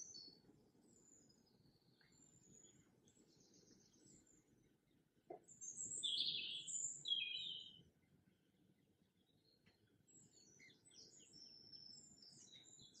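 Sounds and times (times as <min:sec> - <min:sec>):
birds chirping: 0:05.4 - 0:07.8.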